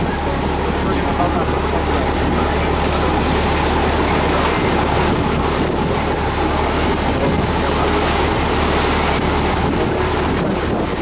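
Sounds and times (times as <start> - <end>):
sea water churning: 0.0 - 11.0
ship engine humming: 0.0 - 11.0
wind on microphone: 0.0 - 11.0.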